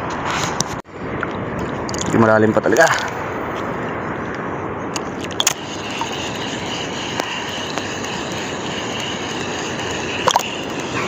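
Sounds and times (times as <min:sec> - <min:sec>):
wind and water on microphone: 0:00.0 - 0:11.0
fishing reel whirring: 0:05.4 - 0:11.0.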